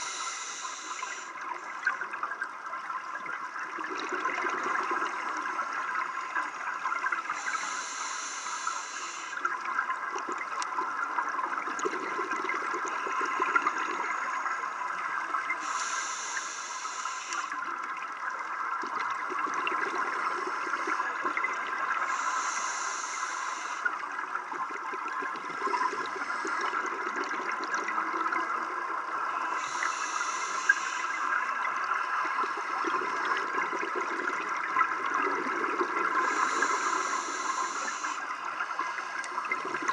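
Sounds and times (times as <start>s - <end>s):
hissing regulator inhale: 0.0s - 1.4s, 7.2s - 9.6s, 12.9s - 17.7s, 21.9s - 24.1s, 29.1s - 32.8s, 36.0s - 39.4s
crackling underwater hiss: 0.0s - 39.9s.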